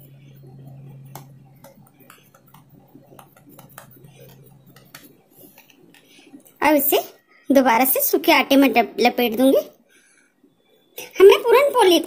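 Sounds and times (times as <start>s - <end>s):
steady low hum: 0.0s - 12.0s
light clicks and taps: 0.4s - 6.6s.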